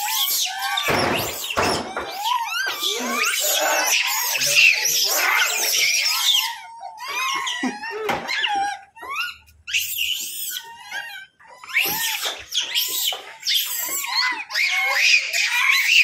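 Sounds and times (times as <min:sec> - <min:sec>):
monkeys screaming and squealing: 0:00.0 - 0:16.0.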